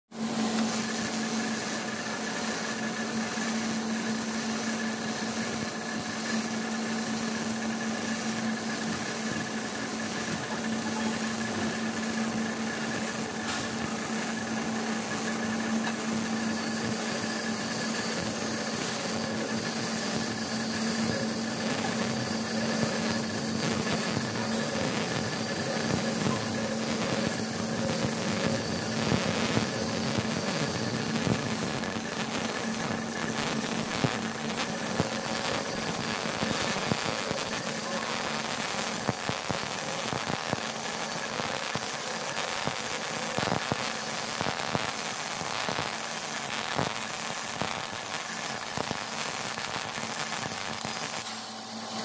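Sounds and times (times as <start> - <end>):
welding arc crackling: 0.2 - 52.0
sharp spatter pops: 12.9 - 14.1.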